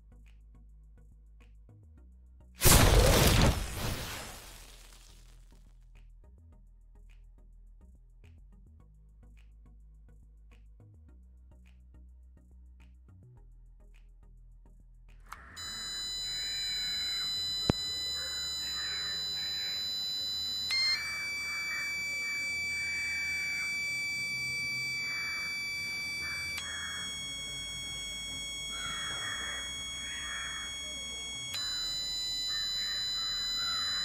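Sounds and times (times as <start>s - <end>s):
buzzy electronic tone: 15.6s - 34.0s.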